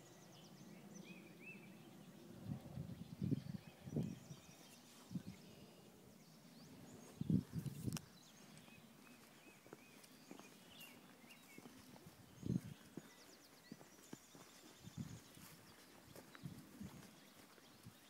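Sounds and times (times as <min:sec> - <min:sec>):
birds chirping faintly: 0:00.0 - 0:18.0.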